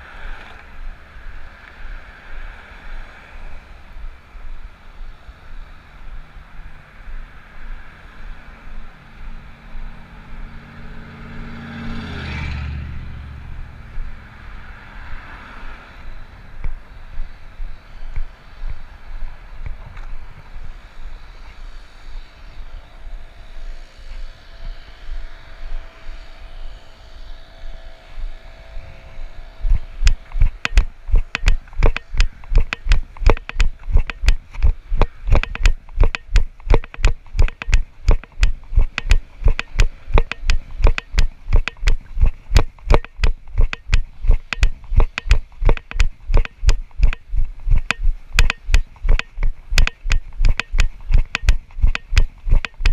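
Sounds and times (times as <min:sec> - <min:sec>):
car passing: 0:00.0 - 0:36.0
outdoor noise: 0:00.0 - 0:52.9
loud rapid knocking: 0:35.3 - 0:52.9.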